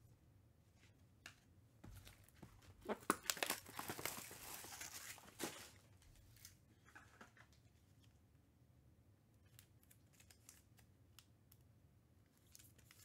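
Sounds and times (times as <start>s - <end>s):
plastic wrapping crinkling and tearing: 2.8s - 7.1s, 9.5s - 10.8s, 12.4s - 13.0s.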